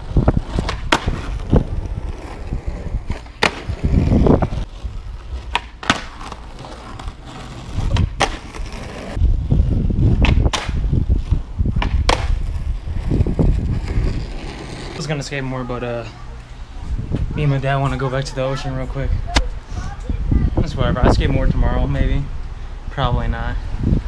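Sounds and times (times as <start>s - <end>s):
skateboard wheels rolling on asphalt: 0.0s - 24.0s
skateboard clacks: 0.4s - 2.4s, 3.2s - 4.7s, 5.4s - 9.2s, 10.1s - 10.8s, 11.8s - 12.6s.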